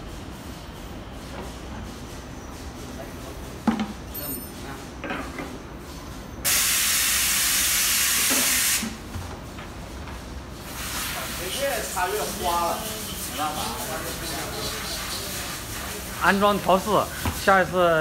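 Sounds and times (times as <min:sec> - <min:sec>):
plastic bucket knock and clatter: 0:03.7 - 0:04.0
aerosol spray can hissing: 0:06.5 - 0:08.8.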